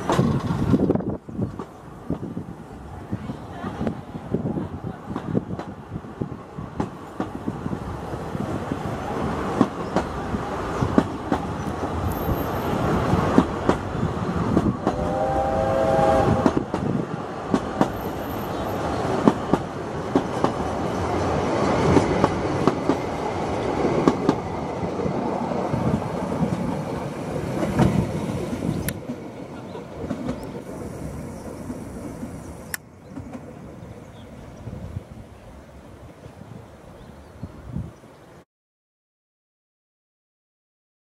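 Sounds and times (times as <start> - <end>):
train wheels clicking over rail joints: 0.0 - 2.2, 9.5 - 15.1, 16.4 - 33.5.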